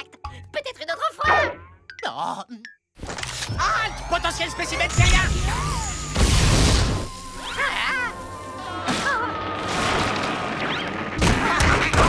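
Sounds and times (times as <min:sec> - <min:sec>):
music: 0:00.0 - 0:01.9, 0:03.5 - 0:11.2
cartoon crash: 0:03.1 - 0:08.1.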